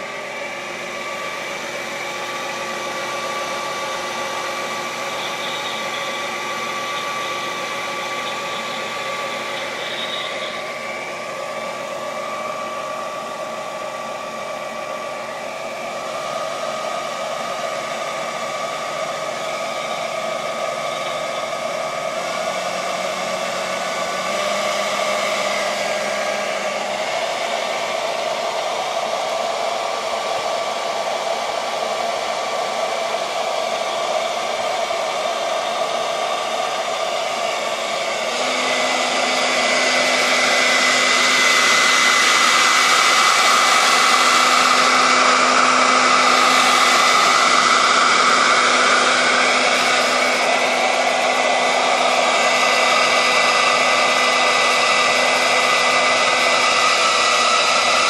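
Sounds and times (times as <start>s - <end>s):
electric fan whirring: 0.0s - 58.0s.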